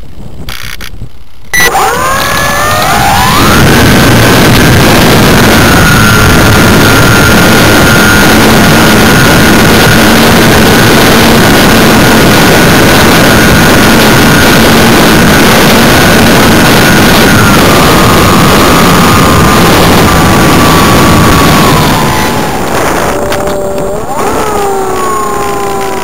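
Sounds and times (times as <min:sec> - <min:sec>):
wind noise on microphone: 0:00.0 - 0:26.0
electric motor and propeller whine: 0:01.6 - 0:26.0.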